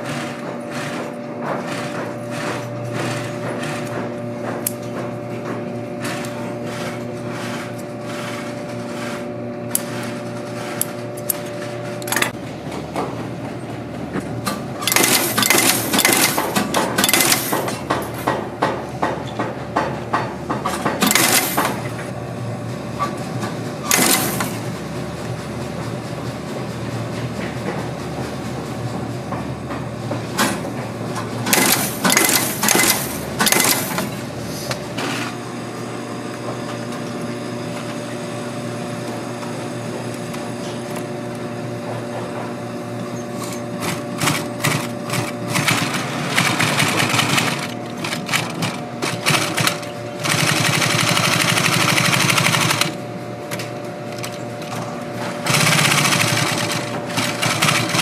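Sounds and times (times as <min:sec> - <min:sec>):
sewing machine stitching leather: 0:00.0 - 0:04.2, 0:06.0 - 0:11.0, 0:14.8 - 0:18.3, 0:20.6 - 0:21.9, 0:23.8 - 0:24.6, 0:31.4 - 0:34.2, 0:43.4 - 0:53.0, 0:54.1 - 0:58.0
hook-setting machine clacks: 0:14.4 - 0:21.9, 0:29.3 - 0:34.2.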